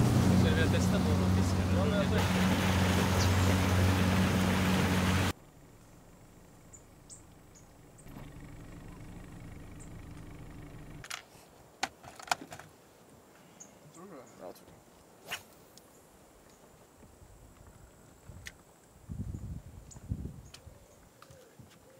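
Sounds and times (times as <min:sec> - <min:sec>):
motorboat engine running: 0:00.0 - 0:05.3, 0:06.2 - 0:11.0
water rushing past hull: 0:00.0 - 0:05.4.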